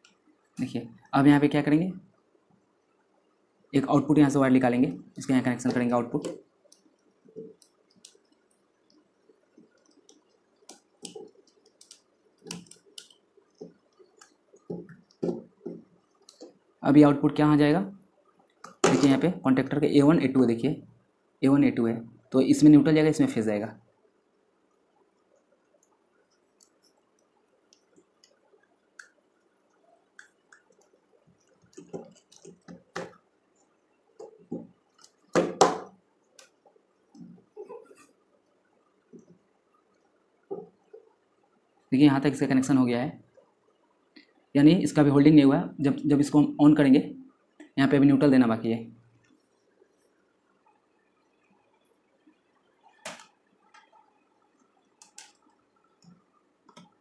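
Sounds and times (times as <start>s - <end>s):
wire clicks and light knocks: 5.6s - 16.6s, 25.7s - 38.1s, 52.8s - 57.0s
faint clicks: 52.8s - 57.0s.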